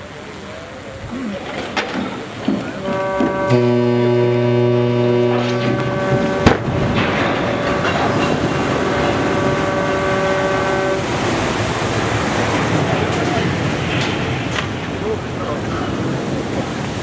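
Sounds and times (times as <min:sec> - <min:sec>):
water rushing and splashing: 0:00.0 - 0:17.0
ship horn: 0:01.1 - 0:14.1
ship hull hitting water: 0:01.4 - 0:17.0.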